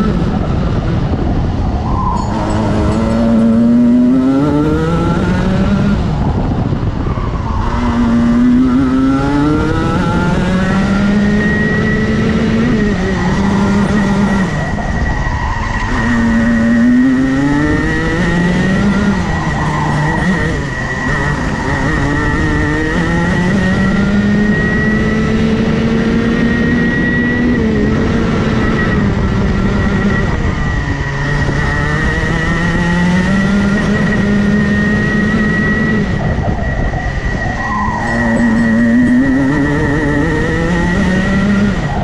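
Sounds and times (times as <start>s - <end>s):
racing kart engine: 0.0s - 42.0s
steady high whine: 0.0s - 42.0s
wind rush: 0.0s - 42.0s.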